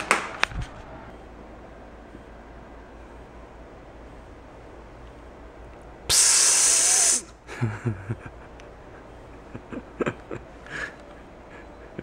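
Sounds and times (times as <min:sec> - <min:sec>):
loud hiss: 0:06.1 - 0:07.3.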